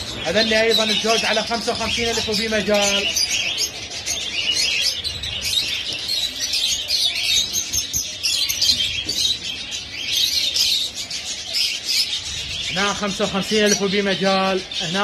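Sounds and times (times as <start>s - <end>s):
lovebirds chirping: 0.0s - 15.0s.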